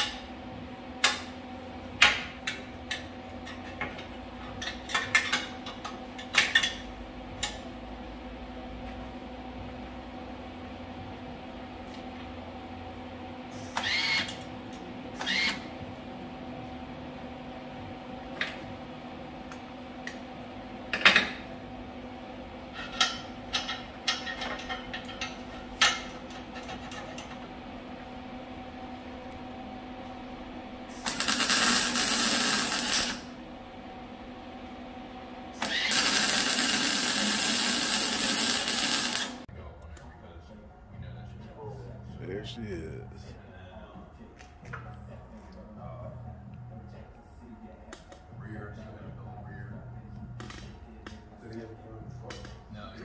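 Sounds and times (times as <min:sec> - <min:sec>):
shop hum: 0:00.0 - 0:53.0
welding arc crackling sizzle: 0:30.9 - 0:33.4, 0:35.5 - 0:39.5.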